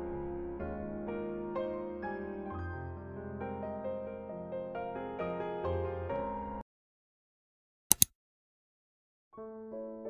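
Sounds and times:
soft piano music: 0.0s - 6.6s, 9.4s - 10.0s
sharp clicks: 7.9s - 8.1s.

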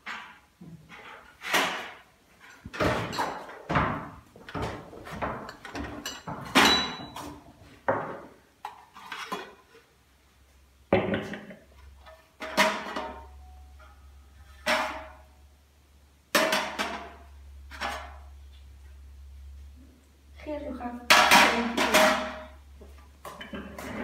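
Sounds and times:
crockery and teapot clattering: 5.3s - 7.3s.

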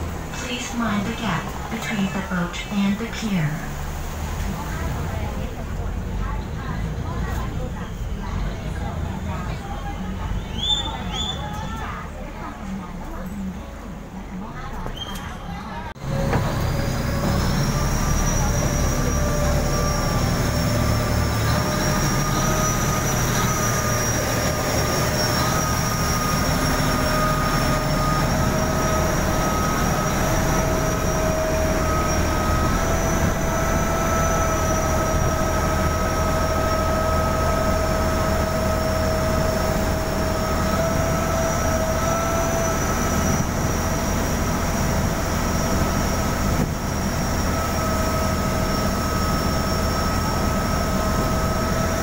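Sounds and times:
boat diesel engine drone: 0.0s - 52.0s
water rushing along hull: 0.0s - 52.0s
high whine: 16.0s - 52.0s.

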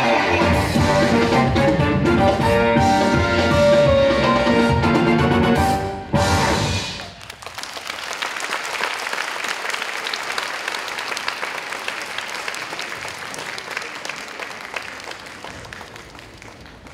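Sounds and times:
audience applauding: 6.9s - 16.9s.

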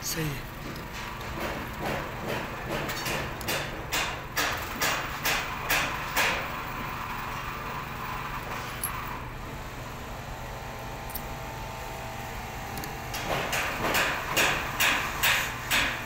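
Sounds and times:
low background hum: 0.0s - 16.0s
sharp knocks: 0.6s - 6.5s, 12.8s - 16.0s.

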